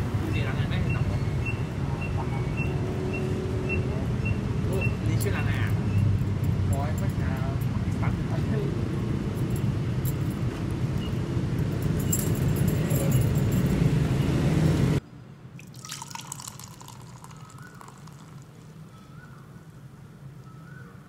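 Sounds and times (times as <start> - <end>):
beer pouring into a glass: 15.6 - 18.8.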